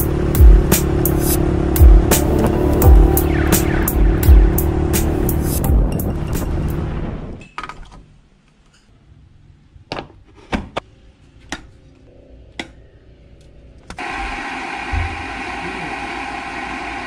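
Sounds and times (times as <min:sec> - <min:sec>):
kettle heating hiss: 0:14.0 - 0:17.0.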